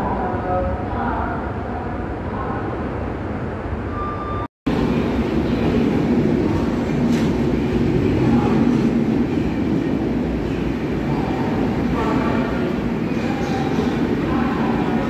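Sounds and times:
low station rumble: 0.0s - 15.0s
passenger train passing: 4.7s - 15.0s.

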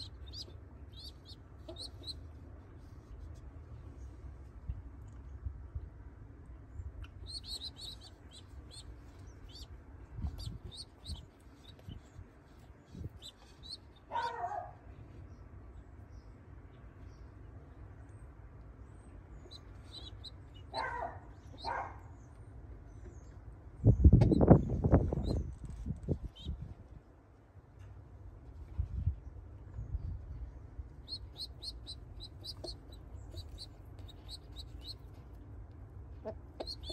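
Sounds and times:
pigeon squabs peeping: 0.0s - 2.2s, 7.0s - 14.6s, 31.0s - 35.2s, 36.2s - 36.9s.

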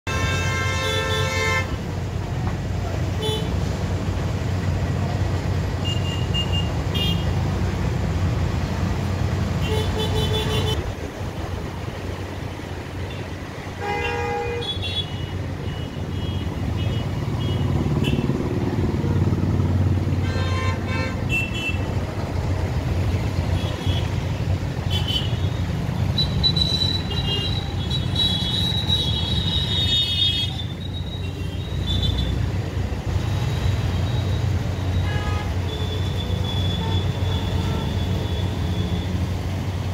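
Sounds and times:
traffic engine and tyre noise: 0.0s - 39.9s
long vehicle horn: 0.1s - 1.8s, 13.8s - 18.2s, 20.2s - 21.9s, 35.0s - 39.0s.

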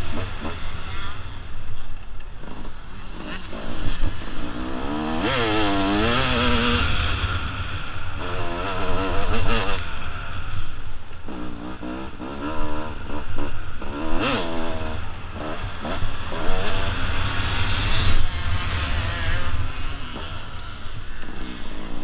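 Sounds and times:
dirt bike engine revving: 2.4s - 22.0s.

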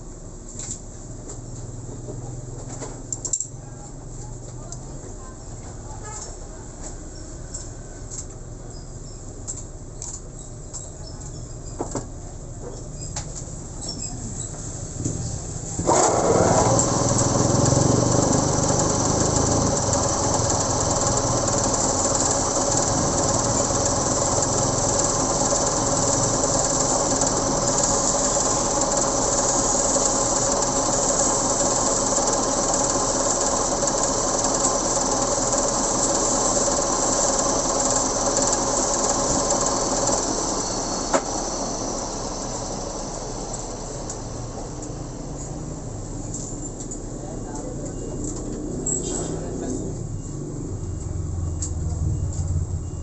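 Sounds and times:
lathe running with gear whine: 15.8s - 46.0s.

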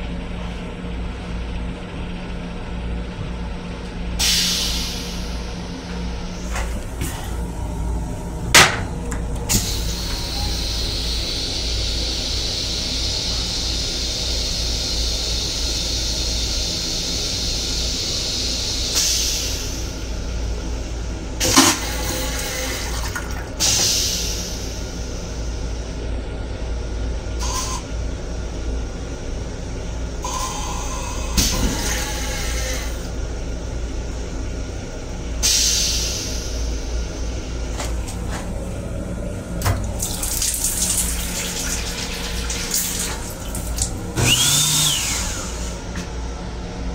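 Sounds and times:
toilet flushing: 6.4s - 20.1s, 21.3s - 25.5s, 30.2s - 33.2s, 37.8s - 46.0s
toilet seat dropping: 8.6s - 9.0s.

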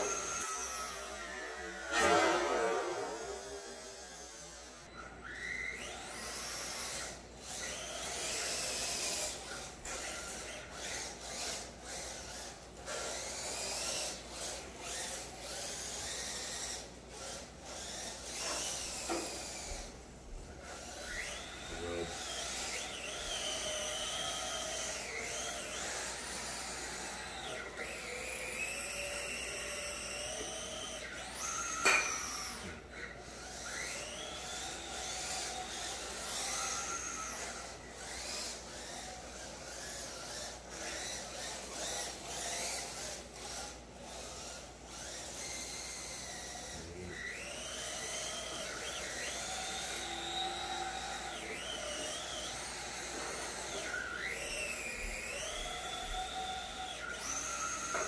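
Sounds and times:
electric motors whining: 0.0s - 58.0s.

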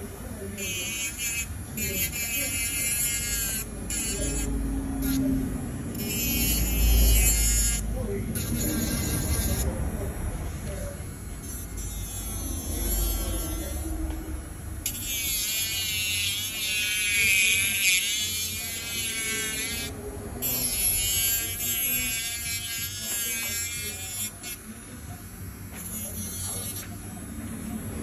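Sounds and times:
electric nail drill whining: 5.9s - 7.8s, 14.8s - 24.4s.

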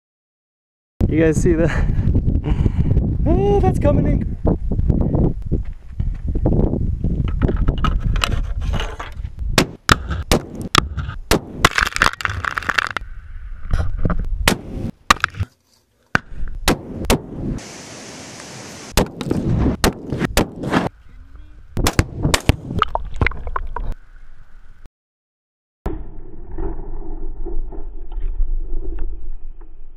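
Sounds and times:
steady hiss: 17.6s - 19.0s.

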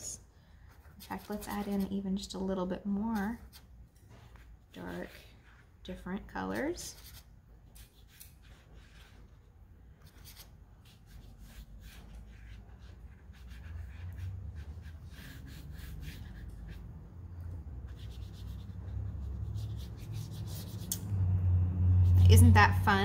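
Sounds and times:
brush strokes on paper: 7.9s - 20.9s.

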